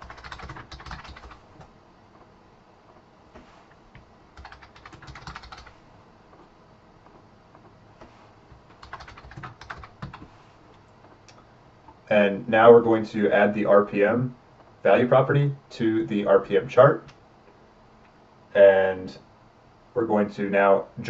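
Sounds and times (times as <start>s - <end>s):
typing on computer keyboard: 0.0s - 1.7s, 4.4s - 5.8s, 8.6s - 10.4s.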